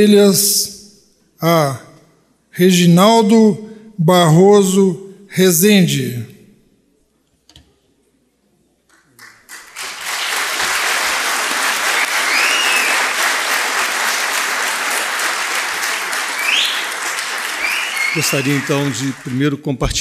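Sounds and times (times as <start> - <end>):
audience applauding: 9.1 - 19.8.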